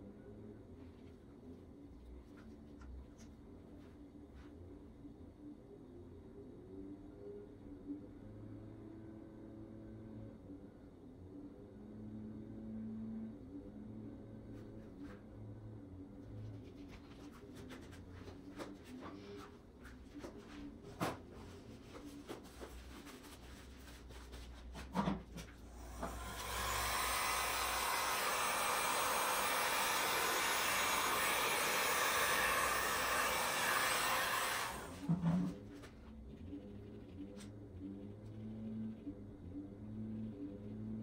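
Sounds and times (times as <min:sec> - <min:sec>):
heat gun blowing: 0:25.7 - 0:35.1.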